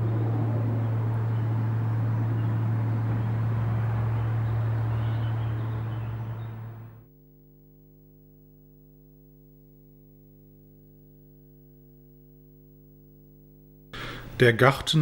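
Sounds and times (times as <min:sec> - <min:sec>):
deep temple bell hum: 0:00.0 - 0:07.1
outdoor noise: 0:00.0 - 0:07.3
faint steady hum of tones: 0:00.0 - 0:15.0.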